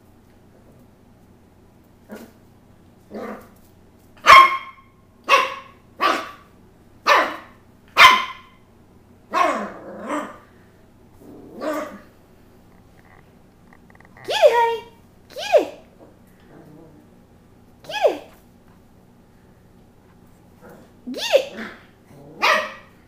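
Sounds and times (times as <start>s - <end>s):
puppy barking: 4.2s - 8.6s, 9.3s - 10.4s, 22.4s - 23.0s.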